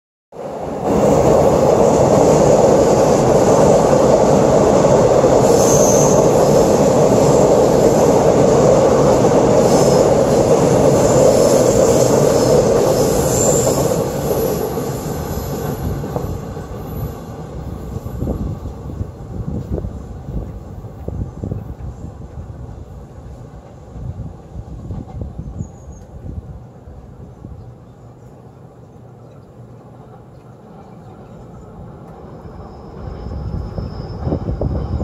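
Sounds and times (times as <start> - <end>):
train wheels rumbling on rails: 0.4 - 35.0
high wheel squeals: 5.4 - 6.4, 11.0 - 18.4, 32.2 - 35.0.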